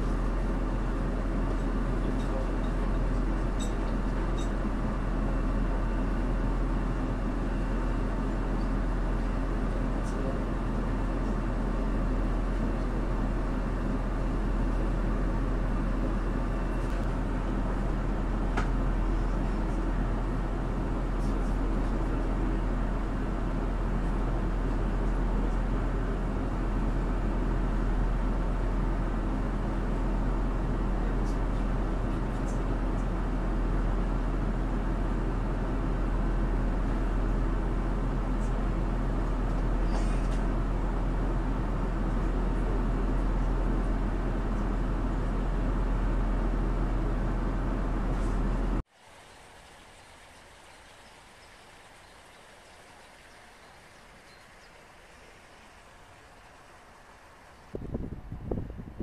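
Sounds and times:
train running rumble: 0.0 - 48.8, 51.4 - 59.0
diesel railcar engine hum: 0.0 - 59.0.

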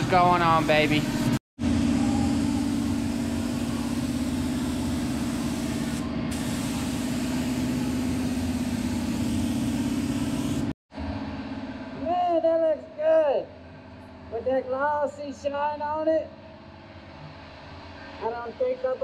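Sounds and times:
paint spray gun hissing: 0.4 - 1.4, 2.3 - 10.7.

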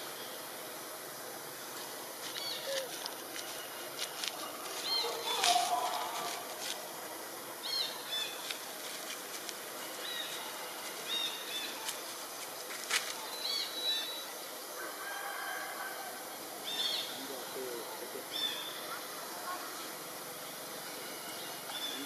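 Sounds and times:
steady outdoor hiss: 0.0 - 22.0
small birds chirping: 2.2 - 6.5, 7.6 - 14.6, 18.2 - 22.0.

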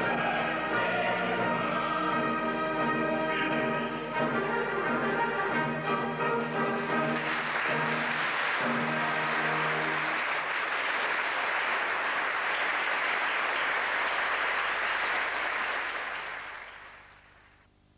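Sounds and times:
opera orchestra chords: 0.0 - 10.5
audience applauding: 5.8 - 17.4.

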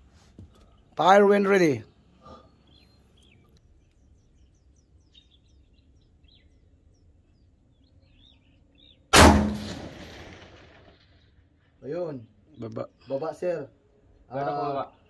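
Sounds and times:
faint bird chirps: 0.5 - 9.1.

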